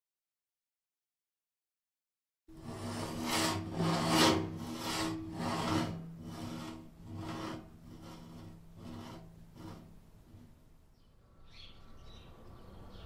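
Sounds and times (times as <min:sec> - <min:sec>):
rhythmic scraping strokes: 0:02.5 - 0:10.6.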